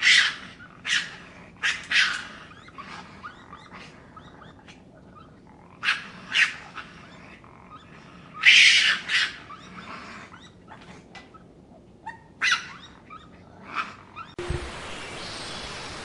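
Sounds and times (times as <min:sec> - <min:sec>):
raccoon calling harshly: 0:00.0 - 0:06.9, 0:08.3 - 0:10.6.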